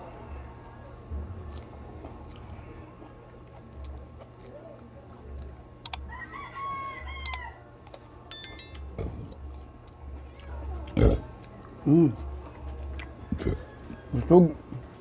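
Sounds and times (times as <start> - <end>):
rooster crowing: 6.1 - 7.6
short electronic chime: 8.3 - 8.8.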